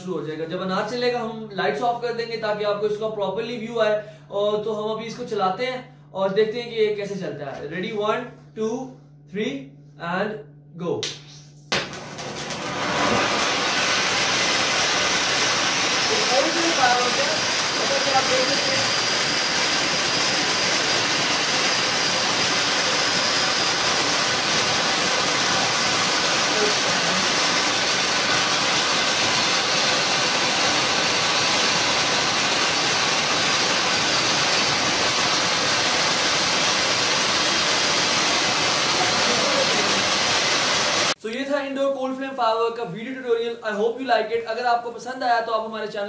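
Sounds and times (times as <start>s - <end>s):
spark fountain hissing: 11.7s - 41.2s.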